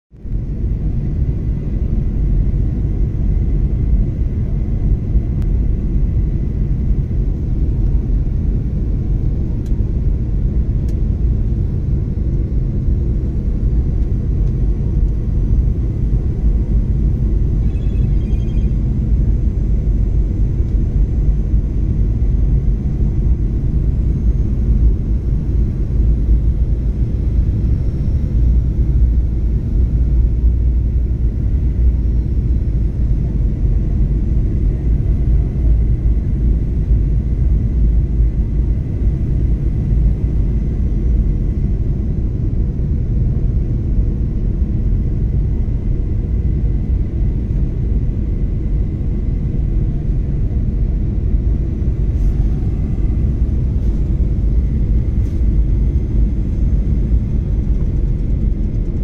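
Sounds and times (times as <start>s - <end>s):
jet engines rumbling: 0.2s - 59.0s
faint high whine: 14.2s - 37.0s, 49.3s - 58.6s
rushing air: 51.9s - 56.5s.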